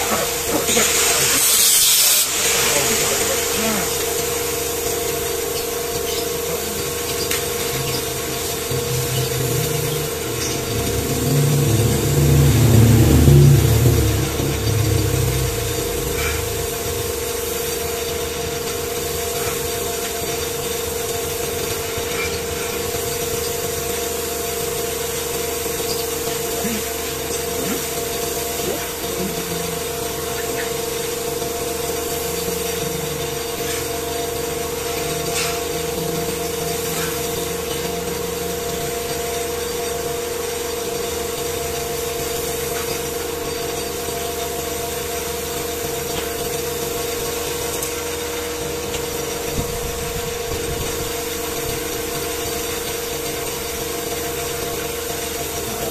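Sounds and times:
steady machine hum: 2.8s - 55.9s.

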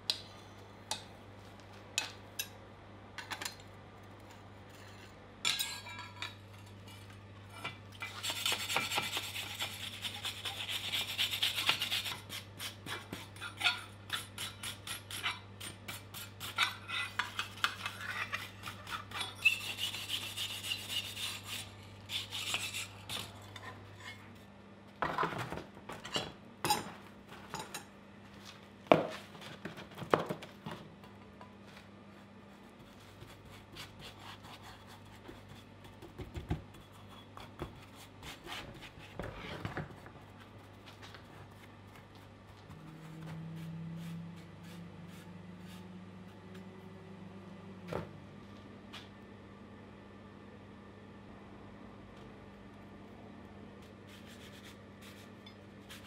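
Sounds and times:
rasping strokes scraping steel: 8.0s - 24.3s.

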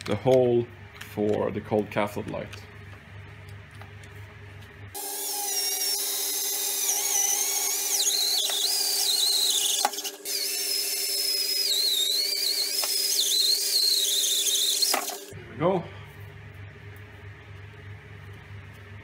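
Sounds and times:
cordless drill boring a hole: 5.0s - 15.3s
drill bit squealing: 5.0s - 15.3s.

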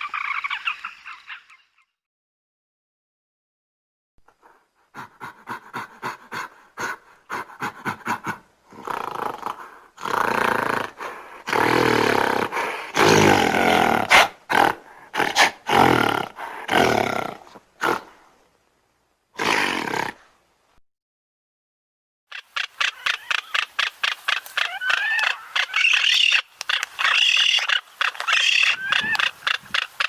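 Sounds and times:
gorilla calling: 0.0s - 1.8s, 22.3s - 30.0s.

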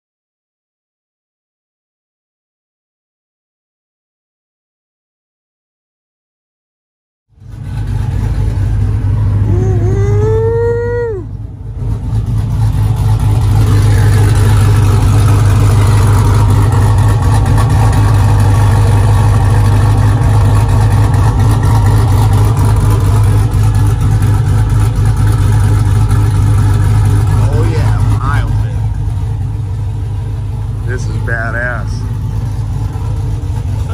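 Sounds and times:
engine loping idle: 7.4s - 33.9s.

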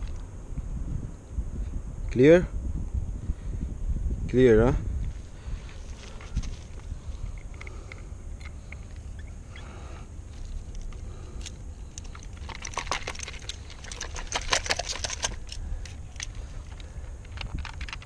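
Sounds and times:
plastic and metal clicks: 11.4s - 18.0s.

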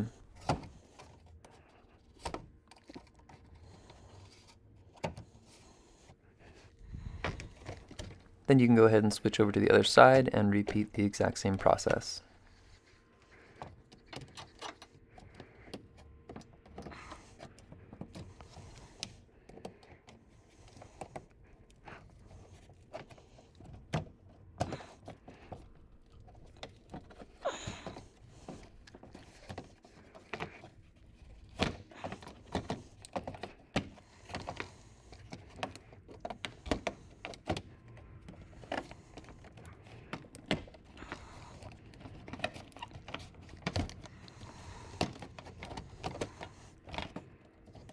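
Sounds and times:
knife cutting and scraping plastic: 11.9s - 47.9s.

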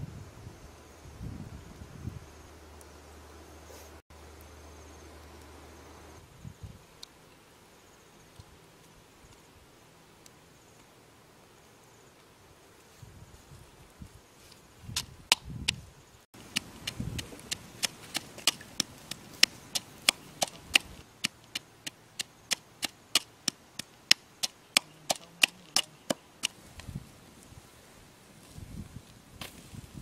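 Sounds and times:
wooden pestle knocking in bowl: 24.4s - 26.2s.

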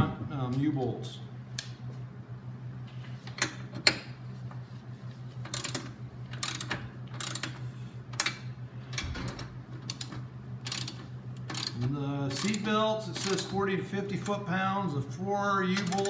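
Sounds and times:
socket ratchet clicking: 5.5s - 7.6s, 9.8s - 13.5s.

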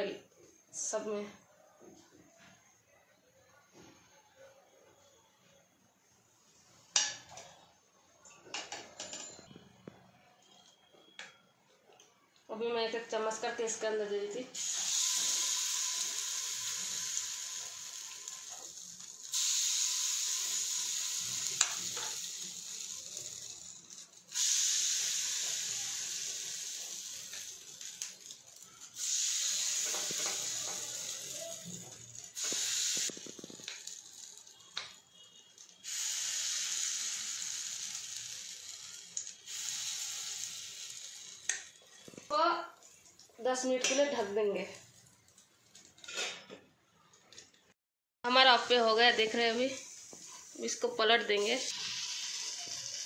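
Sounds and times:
batter sizzling in hot oil: 13.0s - 46.3s, 48.3s - 53.0s.

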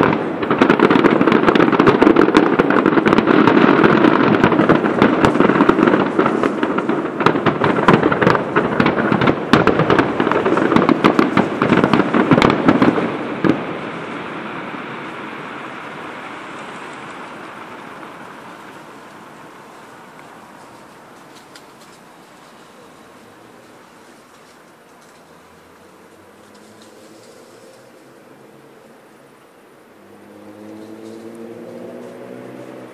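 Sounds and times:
fireworks bangs and crackling: 0.0s - 32.9s.

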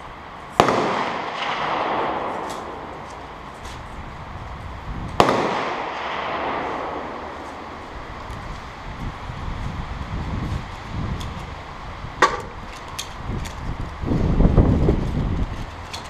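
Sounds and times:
gunshots with echo: 0.6s - 3.1s, 5.2s - 7.8s.

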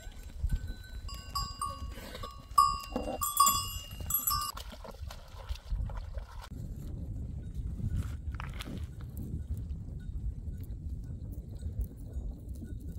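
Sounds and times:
goat bells jingling: 0.2s - 4.6s.

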